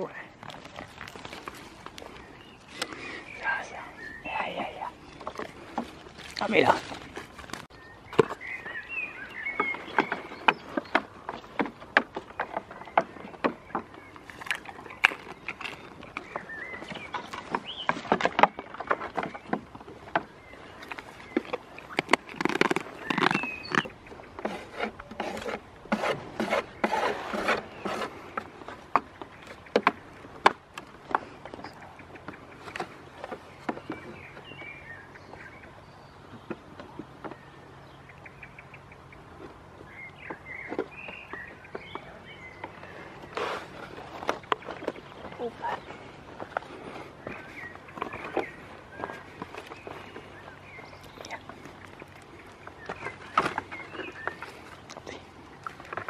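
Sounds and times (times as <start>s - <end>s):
hooves knocking on wooden pallet: 9.5s - 35.5s.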